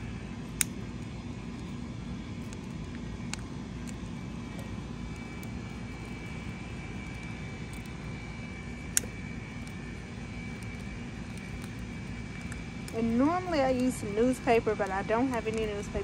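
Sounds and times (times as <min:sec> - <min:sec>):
faint high whine: 0:00.0 - 0:16.0
low outdoor rumble: 0:00.0 - 0:16.0.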